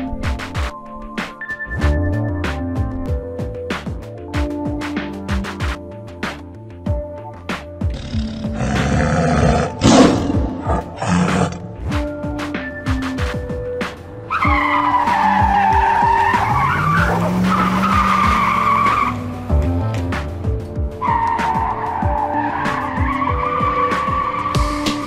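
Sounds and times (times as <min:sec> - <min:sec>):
background music: 0:00.0 - 0:25.0
tyre screech: 0:14.3 - 0:19.3, 0:21.0 - 0:25.0.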